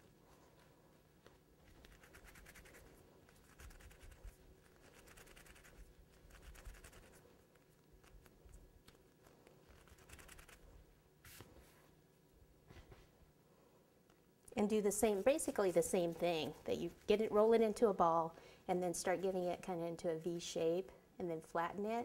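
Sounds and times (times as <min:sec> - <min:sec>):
hands rubbing fondant: 0:00.0 - 0:12.0.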